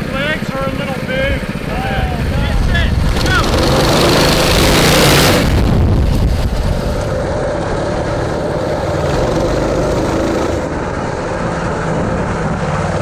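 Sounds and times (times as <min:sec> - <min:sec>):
mini bike engines under throttle: 0:00.0 - 0:10.9.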